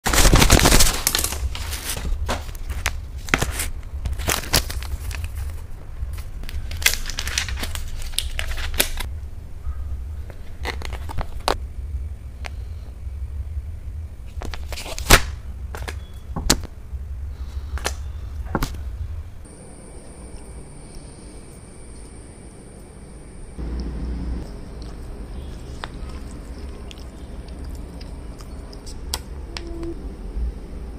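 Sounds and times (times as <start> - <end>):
foil tray crinkling: 0.0 - 9.1, 10.3 - 11.6
low handling rumble: 9.1 - 30.9
faint high tone: 29.5 - 30.1.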